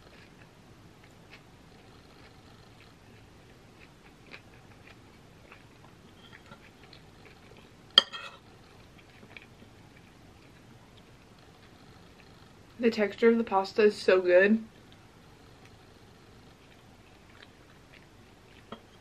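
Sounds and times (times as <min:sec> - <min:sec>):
chewing and mouth sounds: 0:00.0 - 0:07.8, 0:08.4 - 0:12.6, 0:14.7 - 0:19.0
metal fork clinking on bowl: 0:08.0 - 0:08.4.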